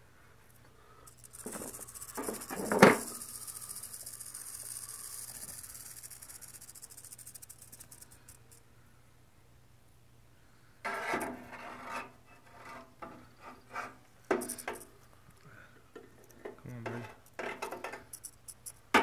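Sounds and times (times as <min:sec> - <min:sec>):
rattlesnake rattling: 0:01.0 - 0:08.6, 0:14.3 - 0:15.0, 0:17.2 - 0:19.0.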